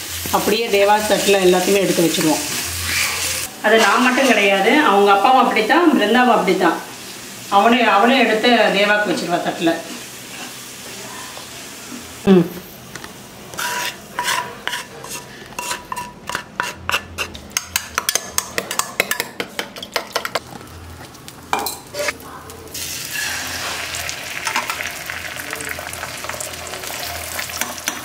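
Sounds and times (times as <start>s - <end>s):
egg mixture sizzling: 0.0s - 12.3s, 12.9s - 28.0s.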